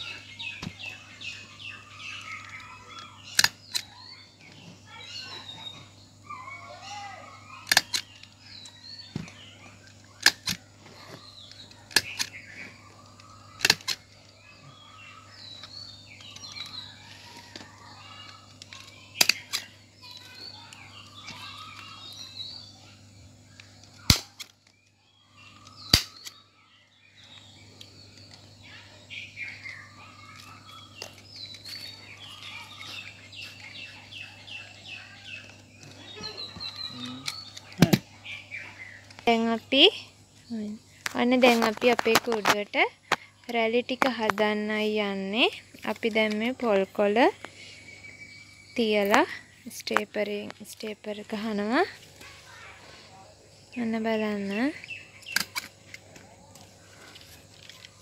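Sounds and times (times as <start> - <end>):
birds chirping: 0.0 - 58.0
hand stapler clicks: 3.3 - 3.9, 7.6 - 8.3, 10.2 - 10.6, 11.5 - 12.4, 13.1 - 14.1, 18.6 - 19.7, 24.1 - 24.5, 25.6 - 26.4.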